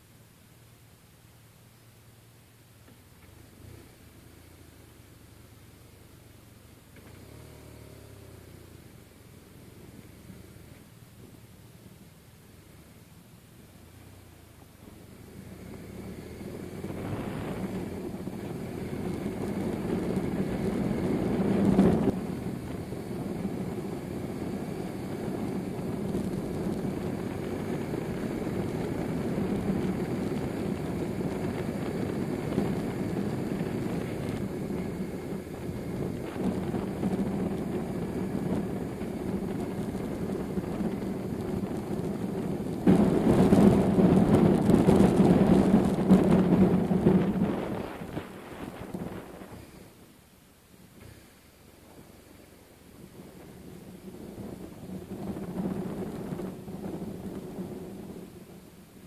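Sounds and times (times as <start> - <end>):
motorcycle engine running: 2.8 - 50.1, 51.0 - 59.0
wind rush on microphone: 14.8 - 50.1, 51.8 - 59.0.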